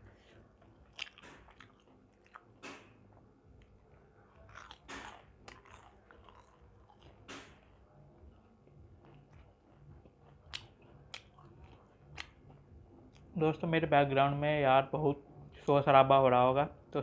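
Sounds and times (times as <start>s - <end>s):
chewing fried food: 0.2s - 13.3s
sharp crunches: 4.5s - 6.6s.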